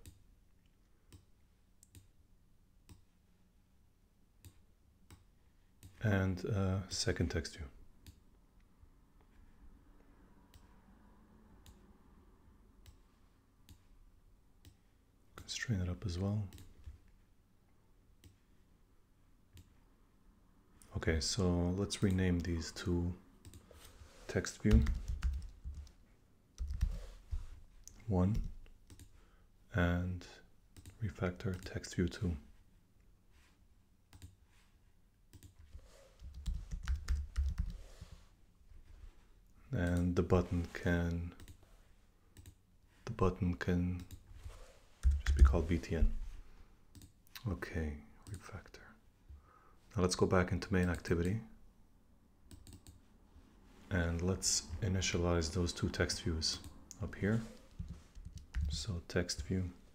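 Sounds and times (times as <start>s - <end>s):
computer keyboard typing: 24.5s - 26.0s, 26.6s - 27.0s, 35.3s - 37.9s, 45.0s - 45.5s, 52.5s - 53.0s, 57.6s - 58.9s
faint computer mouse clicks: 52.5s - 53.0s.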